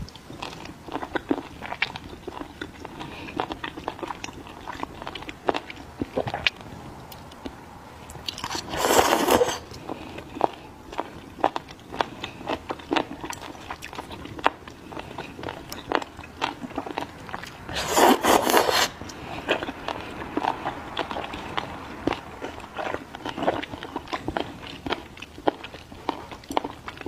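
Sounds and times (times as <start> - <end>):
person slurping: 8.3 - 9.8, 17.7 - 19.7
chewing clicks: 10.4 - 17.6, 19.0 - 27.0.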